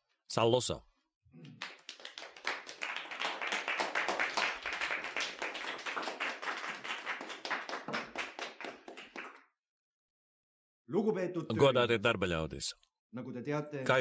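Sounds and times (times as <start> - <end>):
audience applauding: 1.4 - 9.5.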